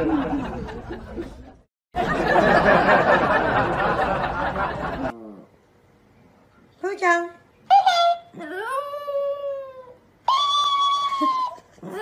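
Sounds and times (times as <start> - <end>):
people laughing and chattering: 0.0 - 5.1.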